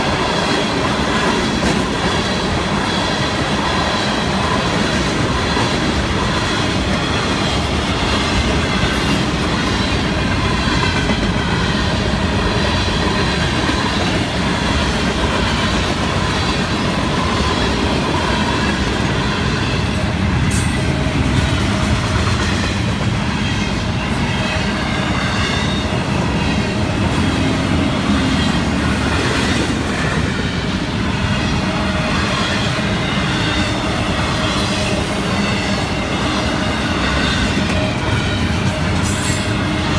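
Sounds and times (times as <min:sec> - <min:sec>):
clickety-clack over rail joints: 0:00.0 - 0:39.9
train wheels rumbling on rail: 0:00.0 - 0:39.9.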